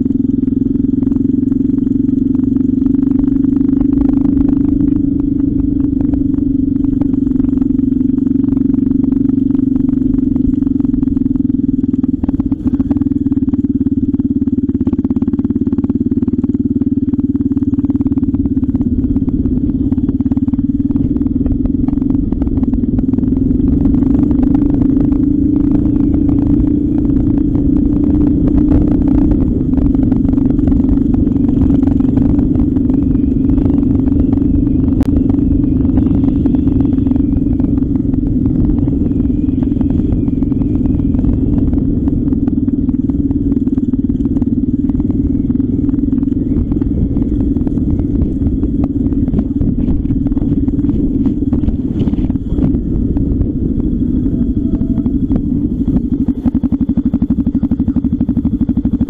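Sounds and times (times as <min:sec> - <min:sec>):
motorcycle engine running: 0:00.0 - 0:59.0
rough low rumble: 0:00.0 - 0:59.0.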